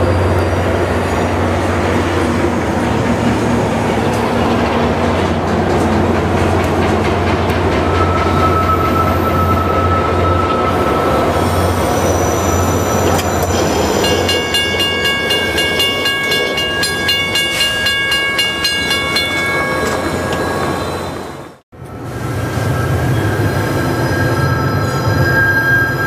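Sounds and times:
train wheels squealing: 0.0 - 1.4, 7.1 - 17.7, 18.8 - 21.6, 22.3 - 26.0
wheels clattering on rail joints: 0.0 - 22.0
train rumbling past: 0.0 - 26.0.

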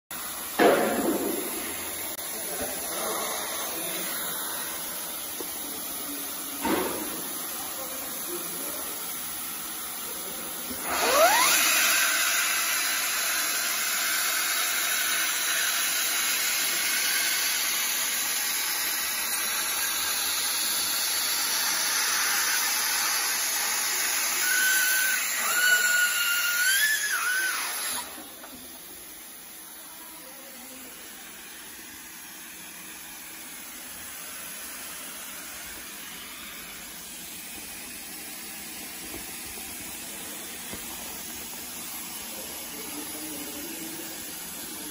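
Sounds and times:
steady machine hum: 0.1 - 44.9
hot air blower rushing: 0.2 - 9.0, 10.1 - 29.3
welding machine whine: 0.2 - 44.9.

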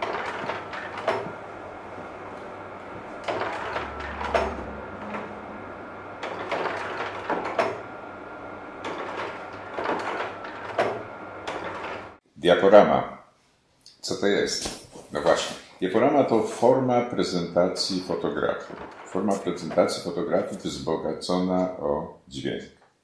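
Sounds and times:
projector hum: 0.0 - 13.0, 14.0 - 22.6
slide projector mechanical clunks: 3.2 - 5.5.

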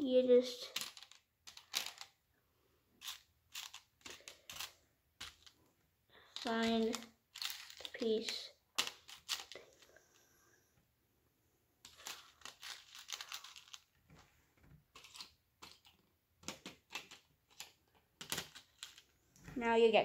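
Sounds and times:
plastic pieces clicking: 0.5 - 2.2, 3.0 - 5.6, 6.3 - 10.0, 11.8 - 14.0, 14.9 - 19.1.

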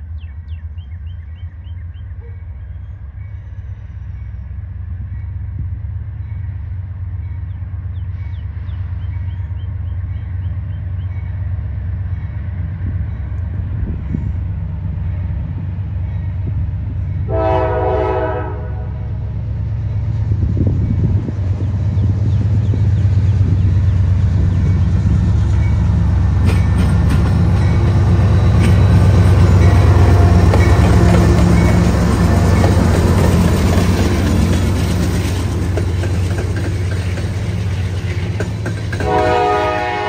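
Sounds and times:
diesel locomotive engine rumble: 0.0 - 40.0
locomotive air horn: 17.3 - 19.1, 39.0 - 40.0.

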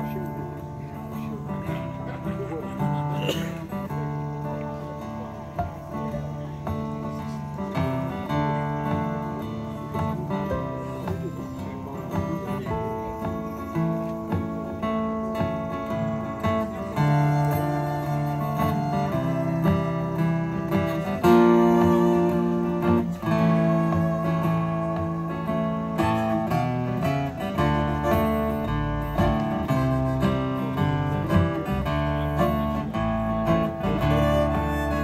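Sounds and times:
fiddle: 0.0 - 35.0
strummed acoustic guitars: 0.0 - 35.0
low bass notes: 8.4 - 35.0.

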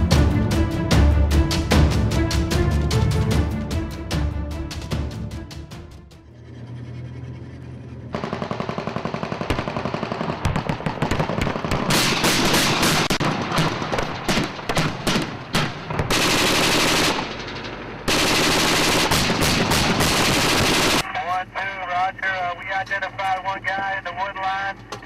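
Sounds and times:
machine-gun fire: 8.1 - 21.0.

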